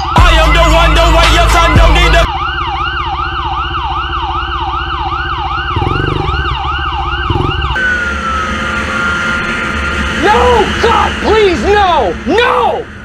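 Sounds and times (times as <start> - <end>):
police siren yelping: 0.0 - 13.0
motorcycle engine revving: 5.0 - 13.0.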